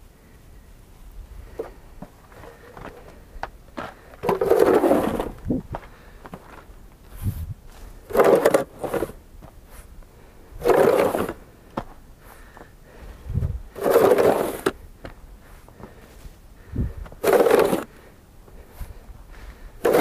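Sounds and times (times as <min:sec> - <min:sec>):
snow shovel scraping: 0:04.2 - 0:05.6, 0:07.3 - 0:09.9, 0:10.6 - 0:11.4, 0:13.7 - 0:14.8, 0:17.2 - 0:18.1, 0:19.8 - 0:20.0.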